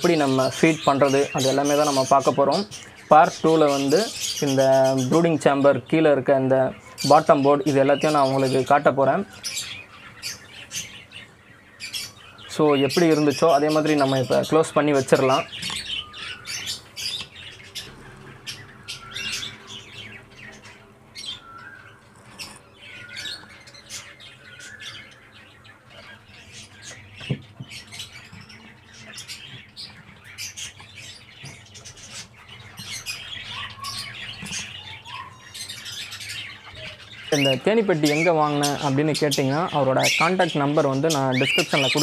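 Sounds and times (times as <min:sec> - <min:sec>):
caged birds chirping and squawking: 0:00.0 - 0:42.0.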